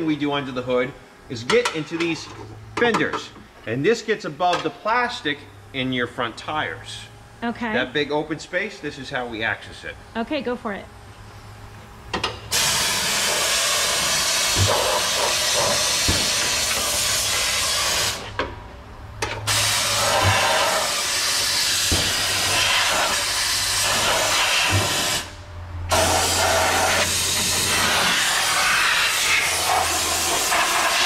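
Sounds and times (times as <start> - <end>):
spray gun hissing: 12.5 - 18.3, 19.5 - 31.0.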